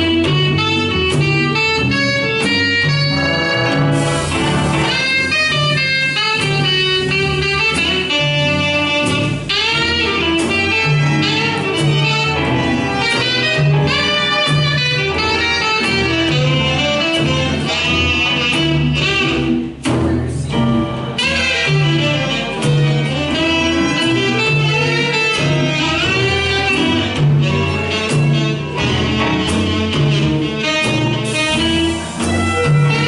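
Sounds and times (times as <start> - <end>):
saxophones playing melody: 0.0 - 19.8, 21.0 - 33.0
big band playing slow jazz: 0.0 - 33.0
repeating bass note: 1.9 - 5.8.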